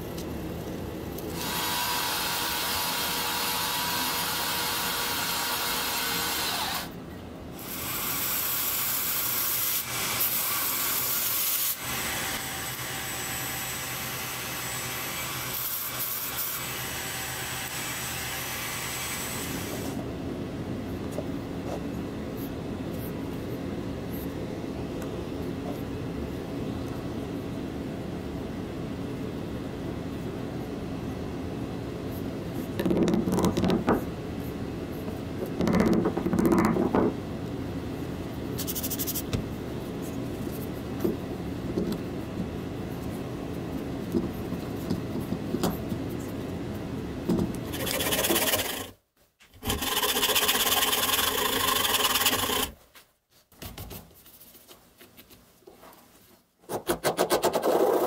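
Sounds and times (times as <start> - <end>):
rubbing and scraping on knife: 38.6 - 39.3, 47.7 - 49.0, 49.6 - 52.8
rasping noise: 47.7 - 49.0, 49.6 - 52.8.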